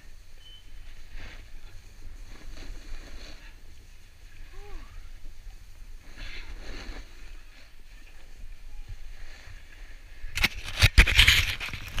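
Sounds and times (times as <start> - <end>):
rough scraping: 1.0 - 4.8, 5.8 - 8.4, 9.1 - 12.0.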